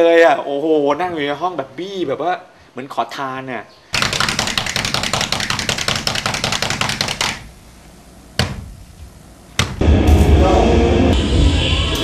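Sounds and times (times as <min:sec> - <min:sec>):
rapid sharp clicks: 0:04.0 - 0:07.4.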